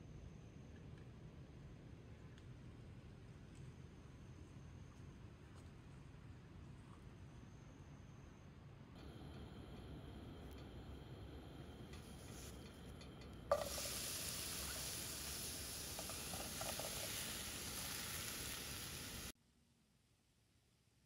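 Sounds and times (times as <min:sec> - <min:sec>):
apple sizzling in pan: 0:10.4 - 0:19.3.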